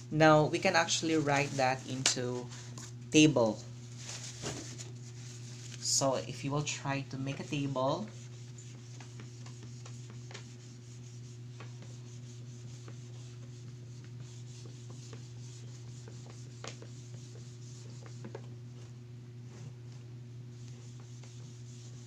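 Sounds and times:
steady low hum: 0.0 - 22.0
scratchy rubbing on whiteboard: 8.1 - 18.9, 20.5 - 22.0.

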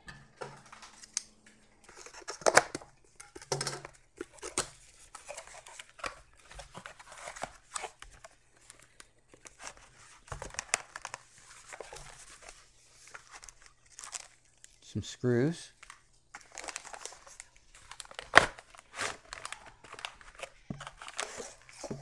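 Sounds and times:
cardboard tearing and crinkling: 3.8 - 14.8, 15.7 - 22.0.

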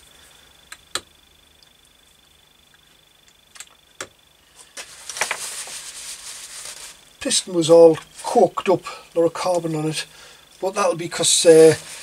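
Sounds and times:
rubbing noise: 4.8 - 7.0.

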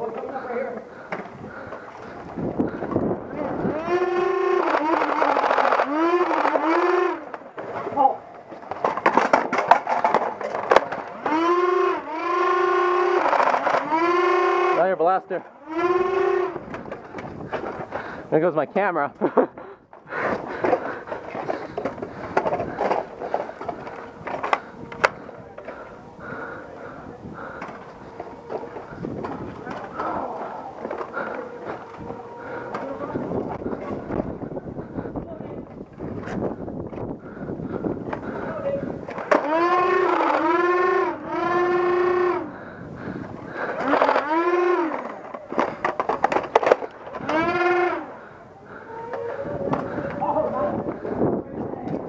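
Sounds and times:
toy blaster motors whining: 0.4 - 17.9, 20.3 - 35.2, 37.2 - 51.3
sharp clicks: 4.3 - 7.4
camera handling rustling: 43.3 - 47.6.

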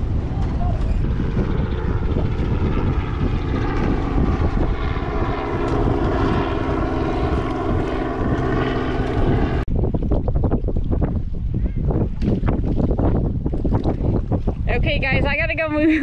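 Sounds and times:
droning engine tone: 0.0 - 9.7
wind rumble on microphone: 0.0 - 16.0.

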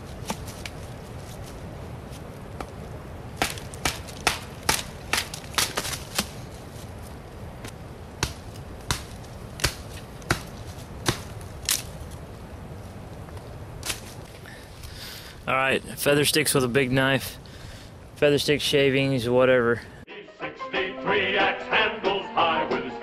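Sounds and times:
knife chopping wood: 3.4 - 6.4, 7.6 - 11.9.

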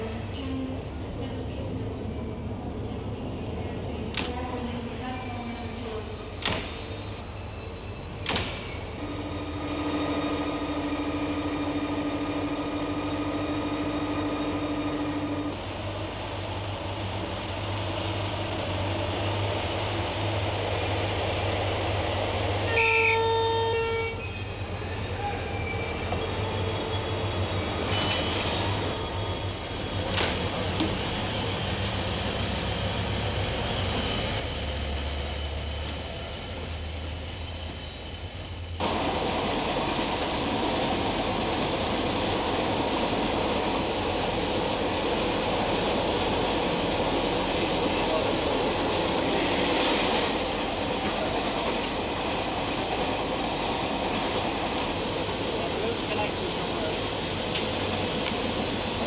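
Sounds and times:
diesel locomotive humming: 0.0 - 59.0
train horn blast: 9.0 - 12.4, 22.7 - 24.2.

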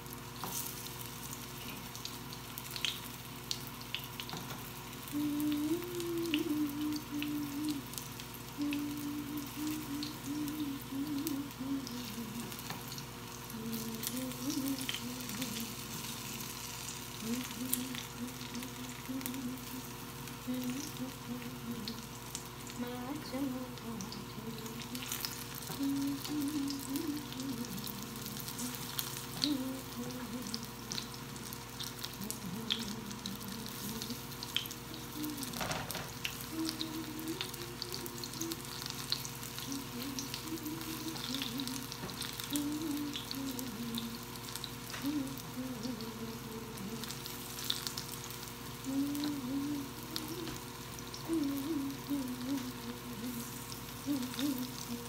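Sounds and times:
fritters sizzling in oil: 0.0 - 55.0
low wavering tone: 5.1 - 12.8, 32.1 - 44.3, 48.8 - 55.0.

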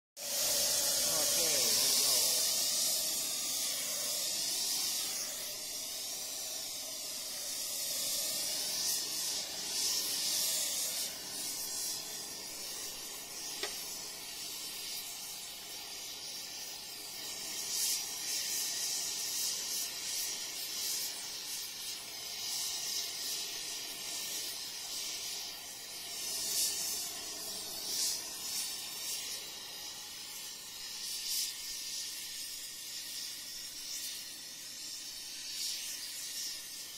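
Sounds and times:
torch flame hissing: 0.2 - 36.9.

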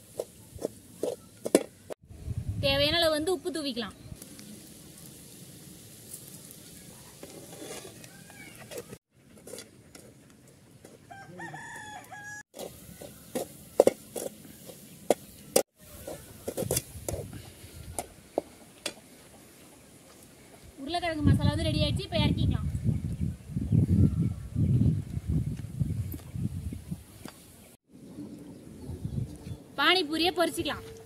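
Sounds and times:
spoon scraping metal pan: 7.2 - 8.0
rooster crowing: 11.1 - 13.1.

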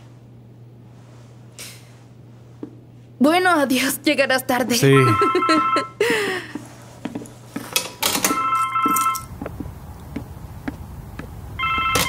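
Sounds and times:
phone ringtone: 4.9 - 6.0, 8.3 - 9.3, 11.6 - 12.0.

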